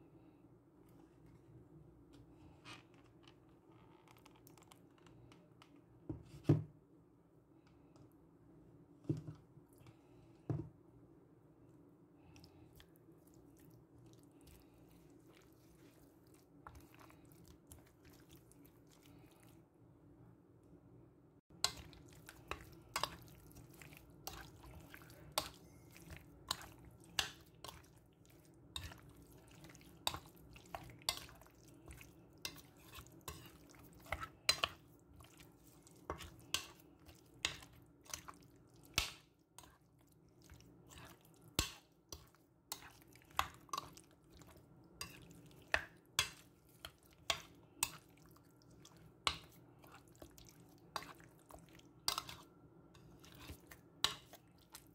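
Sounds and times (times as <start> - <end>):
faint steady hum: 0.0 - 54.9
wet squelches of mixing chicken: 11.5 - 20.8, 21.5 - 54.9.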